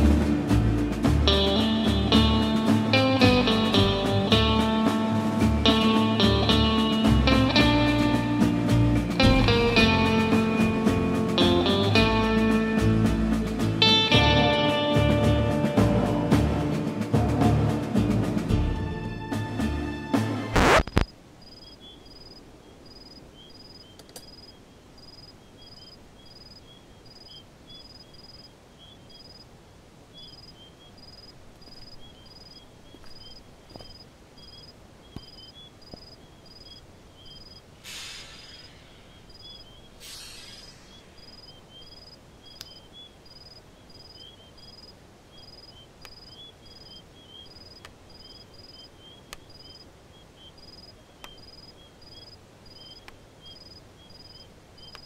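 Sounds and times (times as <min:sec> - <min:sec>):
insect chirping irregularly: 0:20.6 - 0:29.5, 0:30.1 - 0:55.0
crickets chirping: 0:20.6 - 0:55.0.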